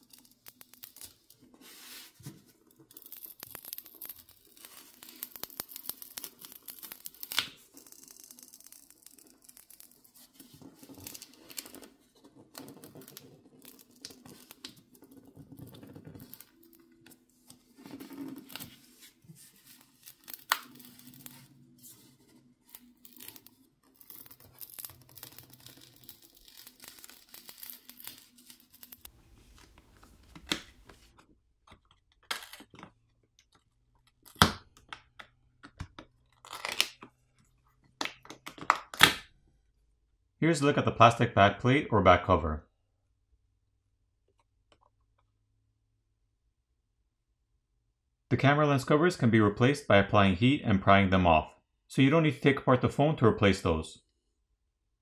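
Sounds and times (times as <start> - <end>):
plastic cover clicks and snaps: 38.0 - 39.3.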